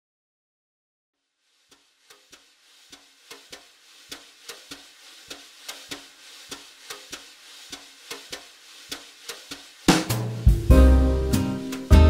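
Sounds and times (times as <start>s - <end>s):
faint hiss: 1.2s - 12.0s
crackling clicks: 1.7s - 10.4s.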